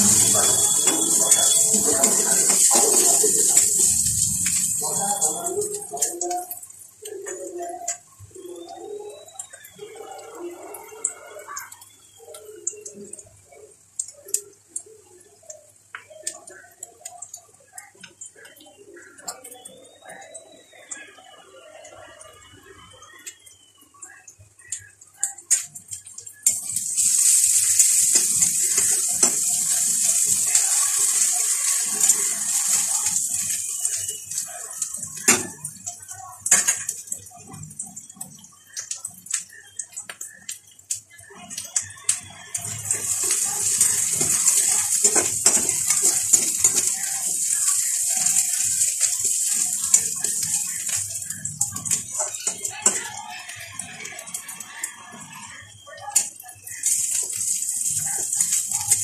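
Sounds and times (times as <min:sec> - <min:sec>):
spatula stirring in a pan: 0:00.0 - 0:08.6, 0:23.6 - 0:37.7, 0:41.2 - 0:59.0
onion sizzling in hot oil: 0:00.0 - 0:20.8, 0:22.6 - 0:59.0
oil popping and crackling: 0:00.0 - 0:59.0.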